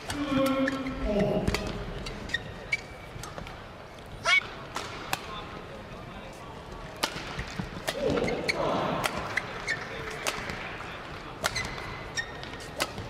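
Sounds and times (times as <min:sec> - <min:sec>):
rackets striking shuttlecock: 0:00.0 - 0:02.2, 0:04.4 - 0:05.4, 0:06.9 - 0:13.0
shoes squeaking on court: 0:00.0 - 0:04.5, 0:07.4 - 0:08.6, 0:09.2 - 0:10.4, 0:11.4 - 0:13.0.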